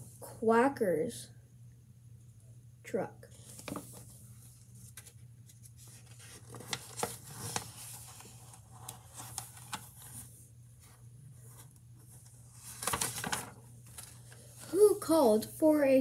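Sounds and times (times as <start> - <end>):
low steady hum: 0.0 - 16.0
book pages turning: 3.3 - 14.7
paper clicks and rustles: 3.4 - 10.3, 11.5 - 14.7.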